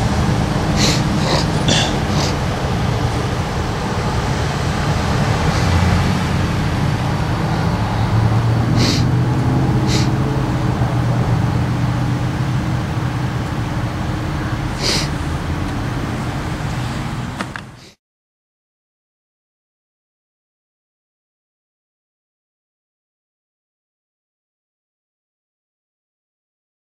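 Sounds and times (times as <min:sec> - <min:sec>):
diesel locomotive engine running: 0:00.0 - 0:18.0
short high hisses: 0:00.8 - 0:02.4, 0:08.8 - 0:09.1, 0:09.9 - 0:10.1.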